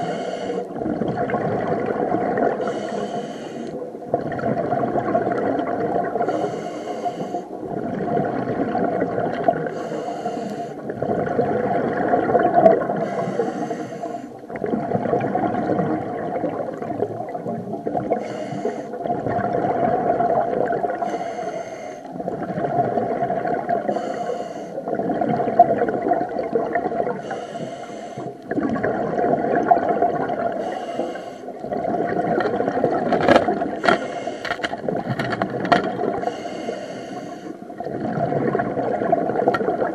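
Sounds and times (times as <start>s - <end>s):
diver breathing through regulator: 0.0s - 0.7s, 2.6s - 3.8s, 6.2s - 7.5s, 9.6s - 10.9s, 12.9s - 14.4s, 18.1s - 19.0s, 21.0s - 22.1s, 23.8s - 24.8s, 27.2s - 28.4s, 30.6s - 31.6s, 33.6s - 34.8s, 36.2s - 37.7s
bubbling rush of exhaled air: 0.0s - 21.4s, 22.1s - 24.1s, 24.8s - 39.9s.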